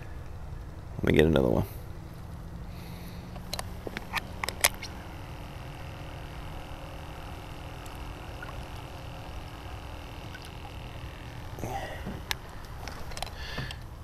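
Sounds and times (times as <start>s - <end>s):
low electric hum: 0.0s - 14.0s
small motor whine: 1.7s - 14.0s
clicks and knocks of gear: 12.0s - 13.9s.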